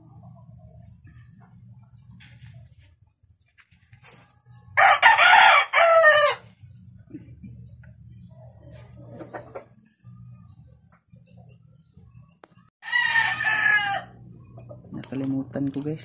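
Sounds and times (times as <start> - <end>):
rooster crowing: 4.8 - 6.5, 12.8 - 14.2.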